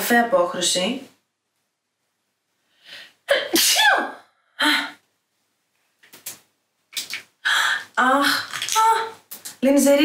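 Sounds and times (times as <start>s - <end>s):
person sneezing: 3.3s - 4.2s.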